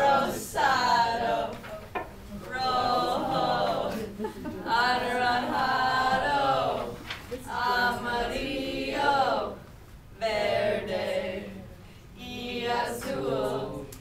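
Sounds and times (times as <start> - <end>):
young voices singing unaccompanied: 0.0 - 14.0.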